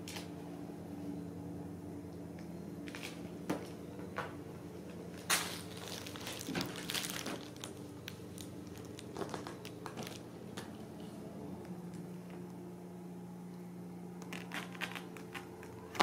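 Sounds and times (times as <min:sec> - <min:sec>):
steady low hum: 0:00.0 - 0:16.0
paper crinkling: 0:05.2 - 0:11.1, 0:14.2 - 0:16.0.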